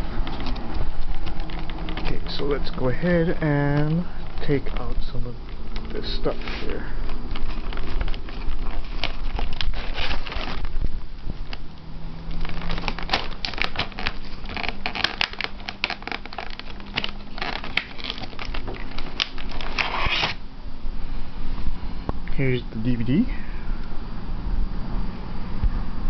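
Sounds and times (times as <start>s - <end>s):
plastic packaging crinkling: 0.0s - 20.4s.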